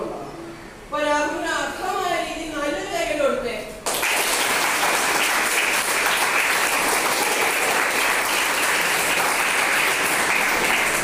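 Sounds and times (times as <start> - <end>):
people applauding: 3.8 - 11.0.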